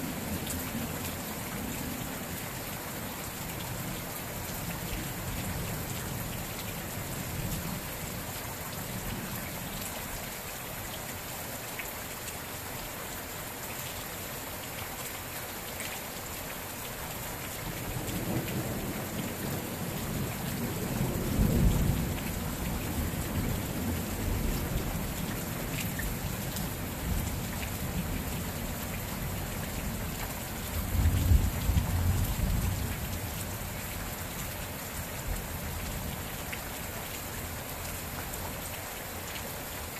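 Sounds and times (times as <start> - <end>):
rain falling: 0.0 - 39.9
low rumble of thunder: 17.9 - 25.6, 30.7 - 33.7.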